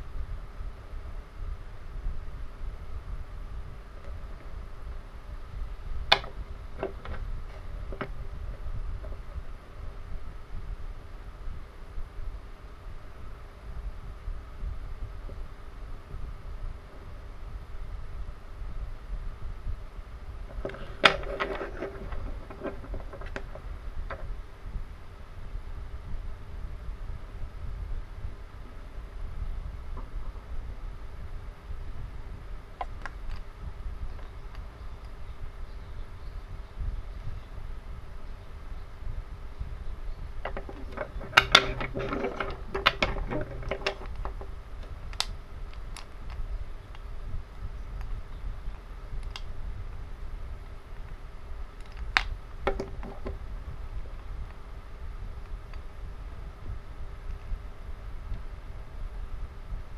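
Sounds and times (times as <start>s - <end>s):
wooden toy trains knocking together: 6.1s - 7.2s, 20.5s - 24.3s, 40.4s - 44.5s, 52.7s - 53.4s.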